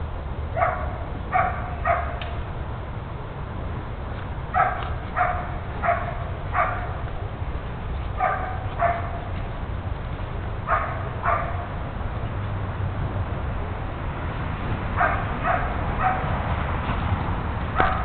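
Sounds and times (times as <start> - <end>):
dog barking: 0.6 - 2.2, 4.6 - 7.0, 8.2 - 9.3, 10.7 - 11.7, 15.0 - 16.3, 17.8 - 18.0.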